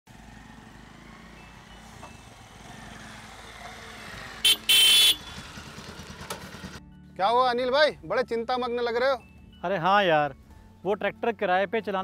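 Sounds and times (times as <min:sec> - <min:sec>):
motorcycle engine running: 0:00.1 - 0:06.8
motorcycle horn beeps: 0:04.4 - 0:05.7.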